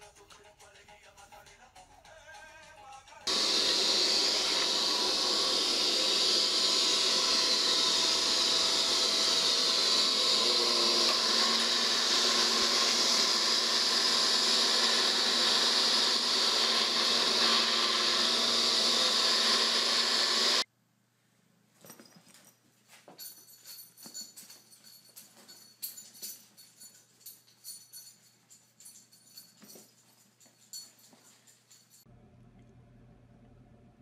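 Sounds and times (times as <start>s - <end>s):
robot vacuum cleaner whirring: 3.3s - 20.7s.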